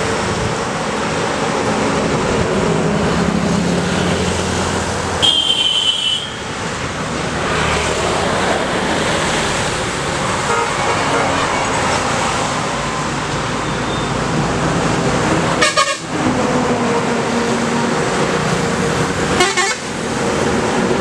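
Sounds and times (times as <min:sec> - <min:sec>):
highway traffic passing: 0:00.0 - 0:21.0
vehicle horn honk: 0:05.2 - 0:06.4, 0:15.6 - 0:16.1, 0:19.4 - 0:19.9.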